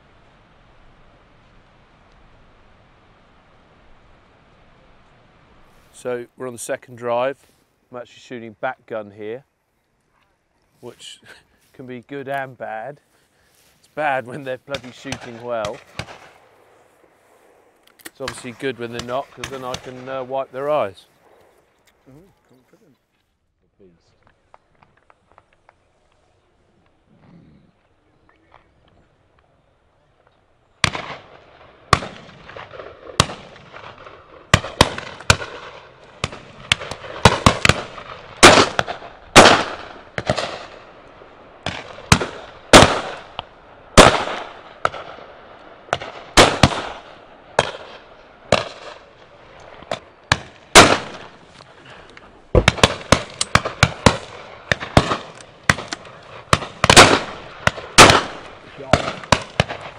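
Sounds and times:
shotguns firing: 14.0s - 16.8s, 17.4s - 21.5s, 30.8s - 59.9s
echo of gunshots: 14.0s - 21.5s, 30.8s - 59.9s.

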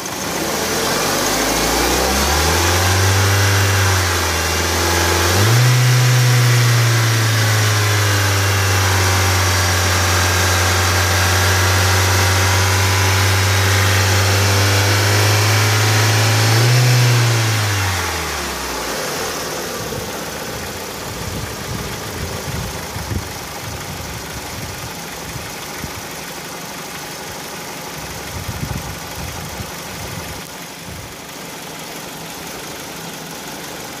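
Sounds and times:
car engine running: 0.0s - 34.0s
strong low hum: 19.5s - 26.0s.

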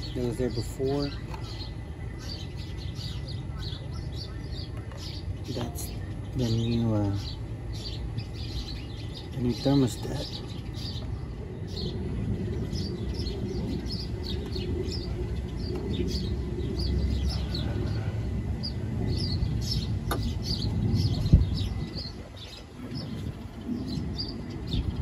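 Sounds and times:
small birds chirping: 0.0s - 25.0s
steady low rumble: 0.0s - 25.0s.

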